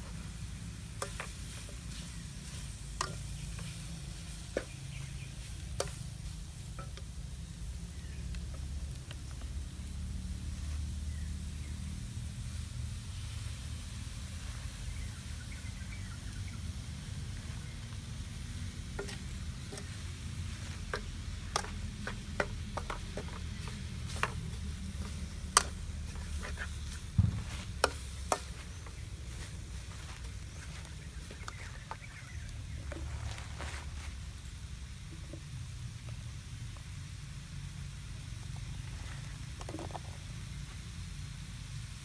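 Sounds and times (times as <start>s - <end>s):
steady low rumble: 0.0s - 39.4s
food frying in a wok: 0.0s - 42.0s
metal ladle clinking and scraping: 3.0s - 3.7s, 19.0s - 20.0s.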